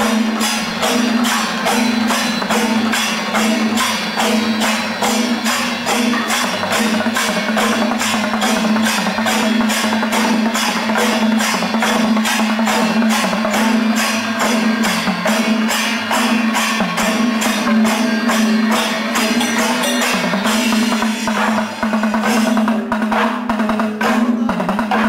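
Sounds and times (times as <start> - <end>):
jingling percussion: 0.0 - 25.0.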